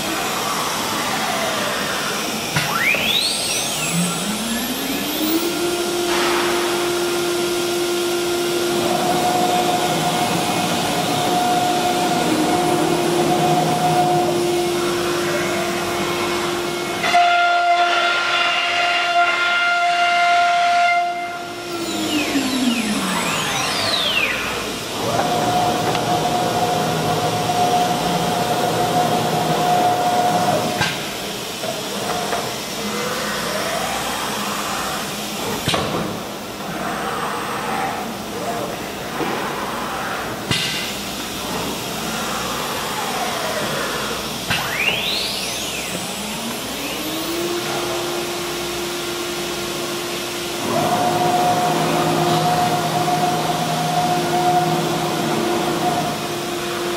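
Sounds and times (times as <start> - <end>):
higher steady whine: 0.0 - 30.8
router spindle whine: 0.0 - 35.8, 39.7 - 56.9.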